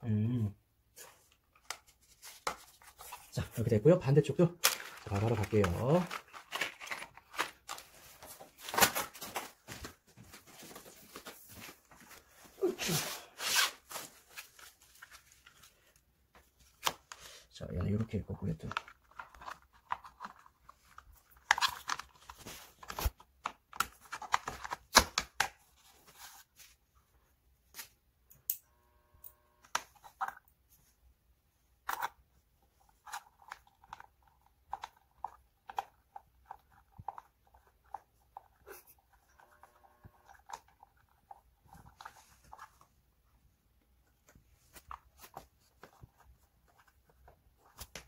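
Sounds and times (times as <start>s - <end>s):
plastic cover clicks and rustling: 4.6s - 10.0s, 18.5s - 25.6s.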